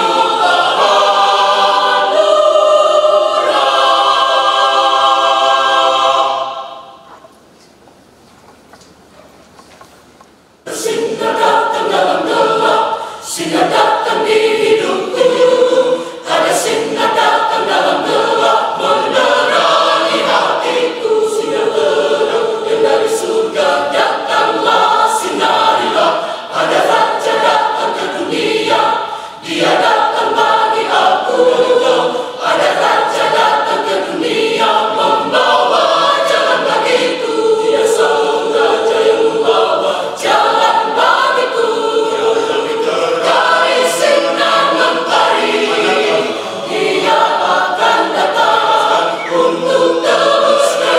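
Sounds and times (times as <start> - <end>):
mixed choir singing: 0.0 - 7.2, 10.6 - 50.9.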